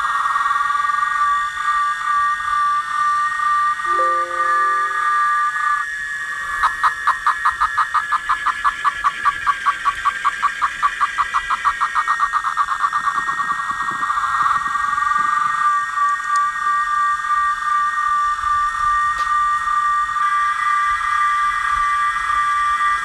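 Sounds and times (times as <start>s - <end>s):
cicadas droning: 6.7s - 23.0s.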